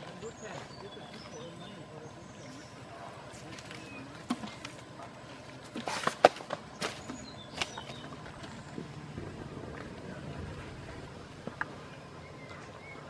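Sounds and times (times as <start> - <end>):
elephant chewing banana stalks: 3.3 - 8.7.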